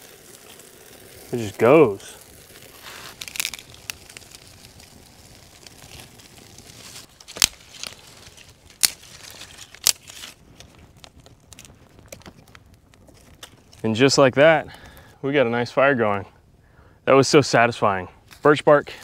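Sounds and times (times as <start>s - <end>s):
fire crackling: 0.0s - 19.0s
fire popping loudly: 0.0s - 19.0s.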